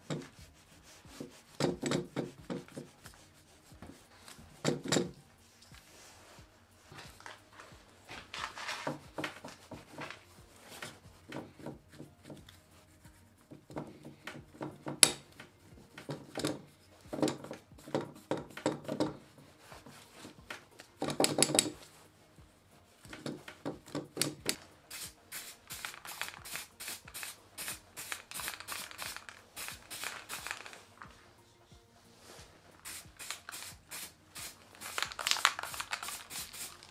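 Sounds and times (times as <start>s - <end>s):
stiff brush scrubbing metal: 0.0s - 5.2s.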